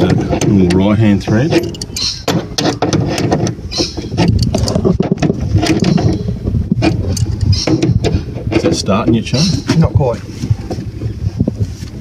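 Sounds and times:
spanners clinking on metal fitting: 0:01.5 - 0:02.4.

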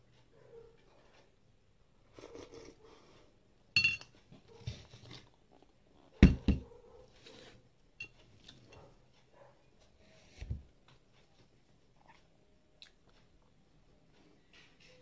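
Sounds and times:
ringing clink of tableware: 0:03.8 - 0:04.1.

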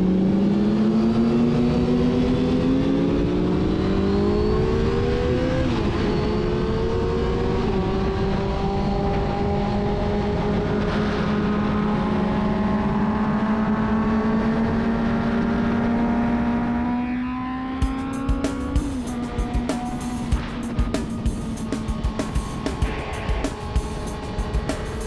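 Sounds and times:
motorcycle engine revving high: 0:00.0 - 0:25.0
rhythmic clicking music: 0:17.8 - 0:25.0.

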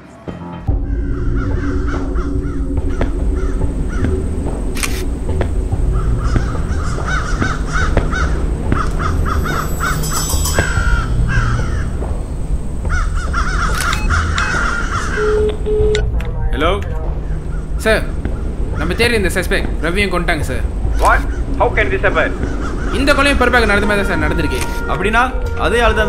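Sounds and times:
crows cawing: 0:00.7 - 0:04.4, 0:05.6 - 0:15.6, 0:22.2 - 0:23.8.

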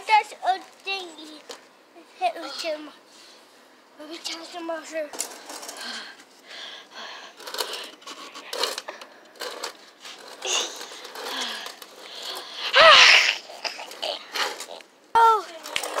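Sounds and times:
soft wordless voices: 0:00.0 - 0:08.9.

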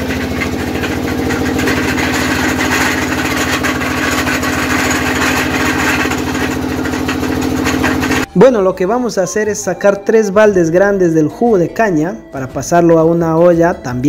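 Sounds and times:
diesel engine running steadily: 0:00.0 - 0:08.4.

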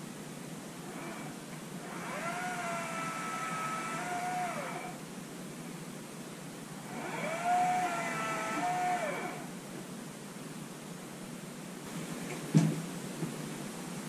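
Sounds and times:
electric chainsaw motor whining: 0:00.8 - 0:05.0, 0:06.8 - 0:09.6.

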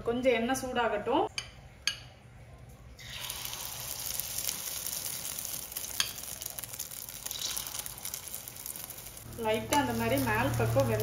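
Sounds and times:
omelette sizzling in hot oil: 0:03.0 - 0:11.0.

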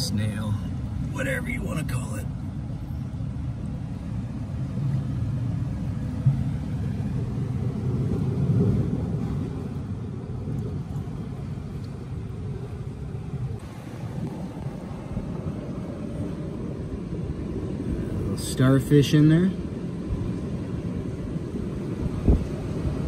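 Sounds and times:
surf on rocky shore: 0:04.6 - 0:23.0.

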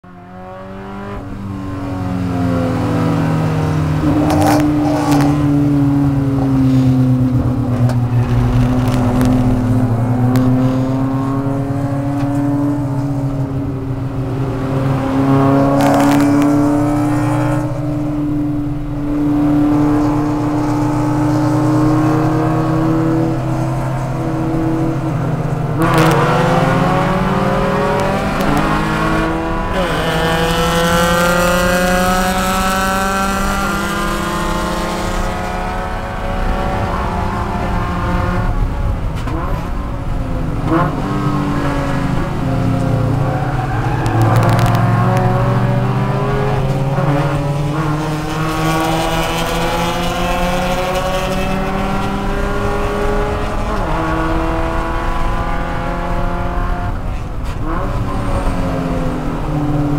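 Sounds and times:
car engine at high revs: 0:00.0 - 0:59.9.

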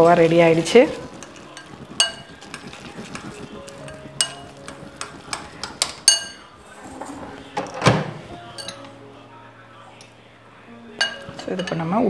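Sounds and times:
soft background music: 0:00.0 - 0:12.0
spoon clinking glass bowl: 0:00.8 - 0:06.6, 0:08.5 - 0:08.9, 0:10.9 - 0:12.0.

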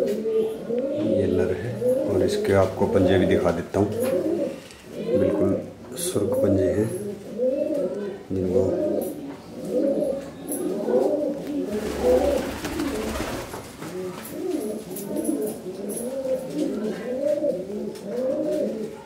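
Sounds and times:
pigeons cooing: 0:00.0 - 0:19.0
rustling noise: 0:10.9 - 0:19.0.

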